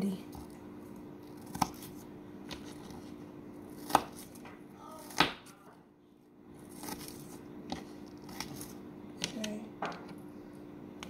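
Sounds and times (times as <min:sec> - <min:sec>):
knife chopping on cutting board: 0:03.7 - 0:04.4.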